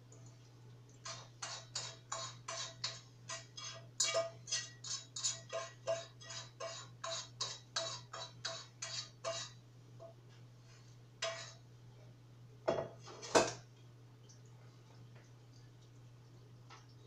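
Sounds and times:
utensil stirring in a pot: 0.0 - 9.7, 10.7 - 11.7.

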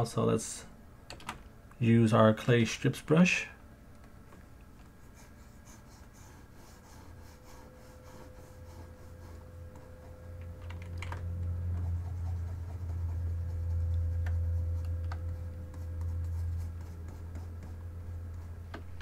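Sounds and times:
low steady hum: 0.0 - 19.0
keyboard and mouse clicks: 1.1 - 1.4, 10.4 - 11.5
faint high whine: 5.3 - 19.0.

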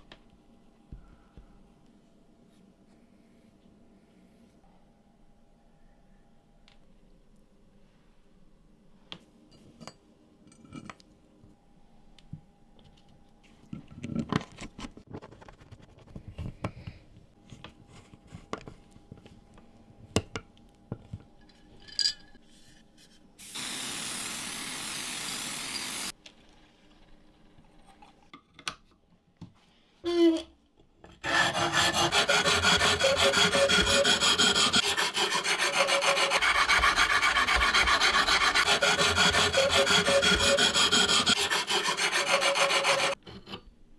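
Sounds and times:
aerosol can spraying: 23.4 - 26.1.

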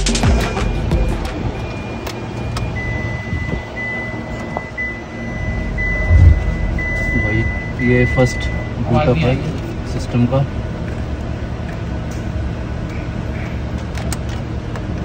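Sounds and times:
electronic warning chime: 0.5 - 8.9
low steady hum: 4.6 - 8.9.

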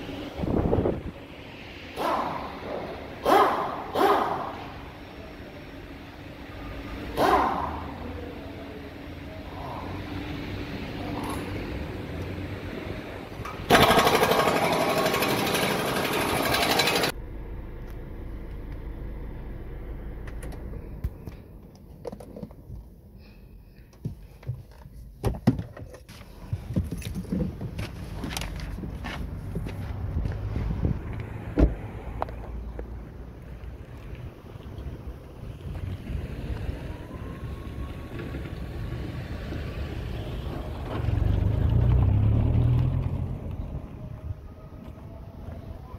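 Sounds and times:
loud fast mechanical rattle: 13.6 - 17.2.

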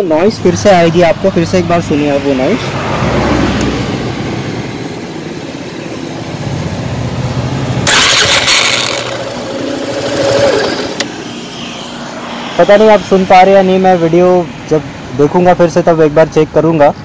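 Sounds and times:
motorcycle engine starting and running: 6.3 - 11.3
harsh starter motor noise: 7.8 - 11.2.

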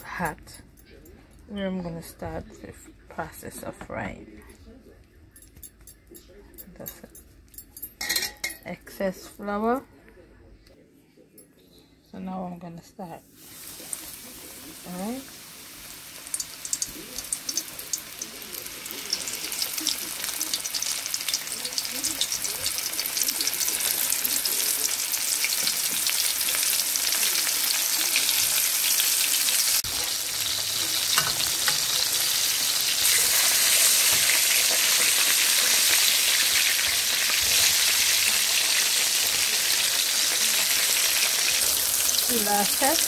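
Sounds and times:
fish frying in hot oil: 13.5 - 43.0.

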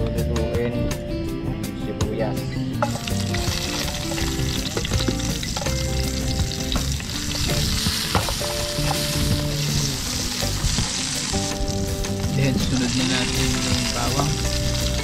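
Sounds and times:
onion sizzling in hot oil: 2.8 - 15.0.

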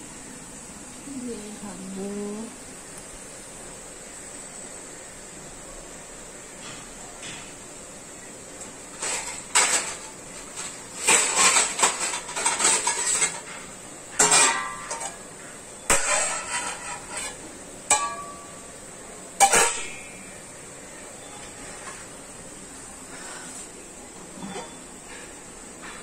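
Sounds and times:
metal dishes and utensils clattering: 8.9 - 15.3, 15.9 - 18.6, 19.4 - 20.3, 24.4 - 26.0.

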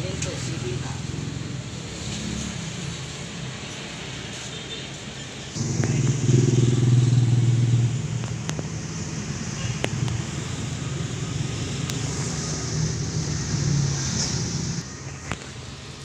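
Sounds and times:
vehicle engine running: 5.6 - 14.9.

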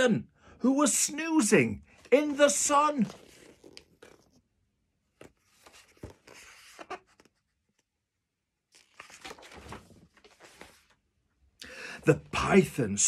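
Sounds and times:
book pages rustling: 1.9 - 8.0, 8.7 - 11.1.

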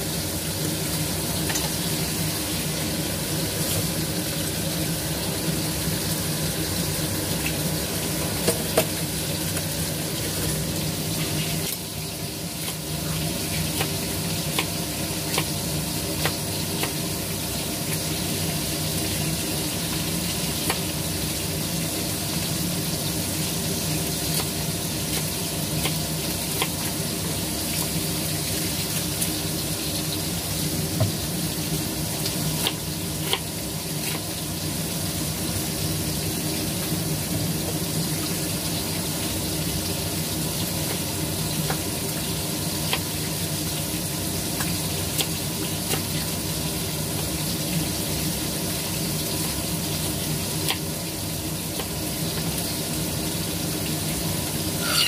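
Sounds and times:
food sizzling in a pan: 0.0 - 55.0.

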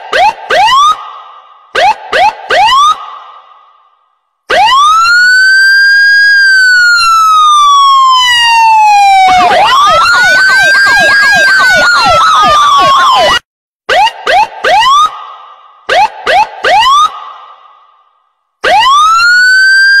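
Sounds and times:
fast siren yelp: 0.1 - 1.0, 1.8 - 3.0, 4.5 - 15.2, 15.9 - 17.3, 18.6 - 20.0
electronic siren wailing: 4.5 - 15.2, 15.9 - 17.1, 18.6 - 20.0.

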